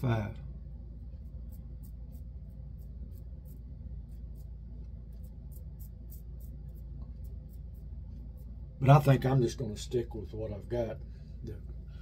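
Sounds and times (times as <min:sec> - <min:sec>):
razor shaving stubble: 0:01.2 - 0:09.4.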